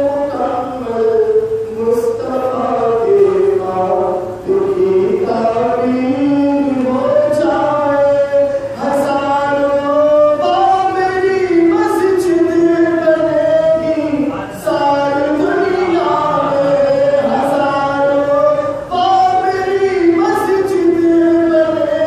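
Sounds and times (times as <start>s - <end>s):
man chanting: 0.0s - 22.0s.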